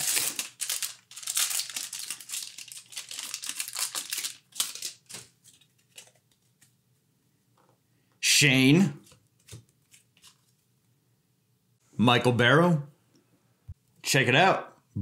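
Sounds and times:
foil wrapper tearing and crinkling: 0:00.0 - 0:06.2
cards rustling and tapping: 0:00.0 - 0:06.8, 0:09.0 - 0:10.6.

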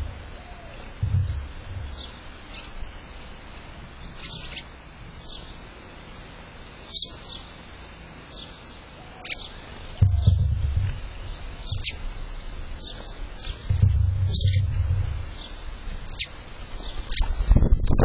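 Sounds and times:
finches chirping: 0:00.0 - 0:05.7, 0:06.7 - 0:17.4
low rumble: 0:01.0 - 0:02.3, 0:10.0 - 0:16.1.

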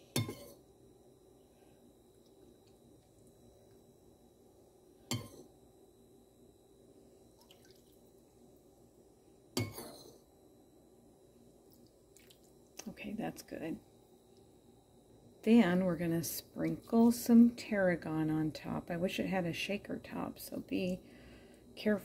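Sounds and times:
liquid dripping: 0:07.4 - 0:08.1, 0:11.7 - 0:12.8.

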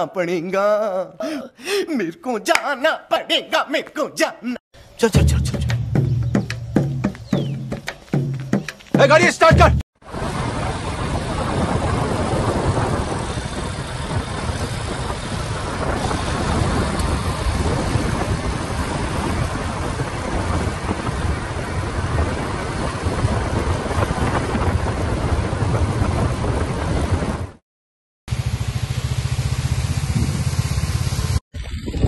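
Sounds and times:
wind over microphone: 0:10.0 - 0:27.6, 0:30.0 - 0:30.6, 0:31.6 - 0:32.0
motorcycle engine running: 0:28.3 - 0:32.0.

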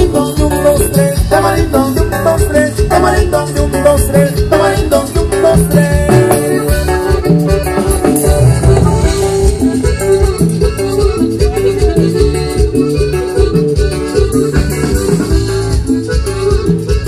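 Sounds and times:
loud latin dance music: 0:00.0 - 0:17.0.

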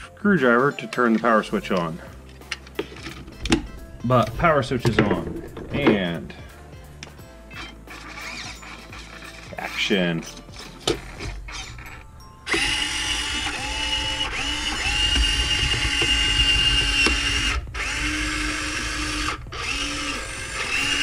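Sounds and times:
electric servos whining: 0:06.3 - 0:09.6, 0:10.5 - 0:21.0.

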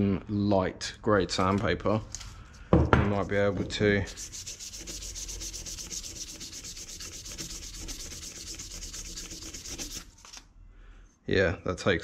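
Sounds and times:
sandpaper scraping metal: 0:03.2 - 0:10.4.

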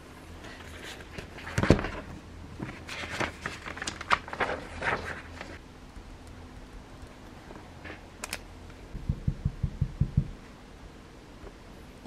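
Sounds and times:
paper rustling: 0:00.5 - 0:05.6.

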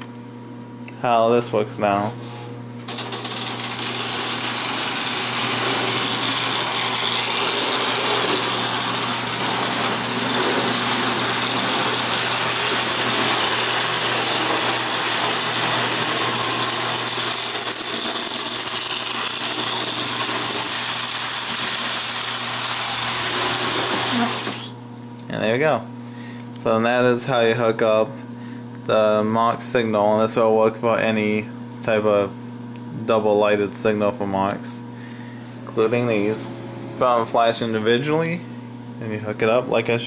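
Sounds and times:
low mains hum: 0:00.0 - 0:40.0
toy train motor whirring: 0:02.9 - 0:24.7.

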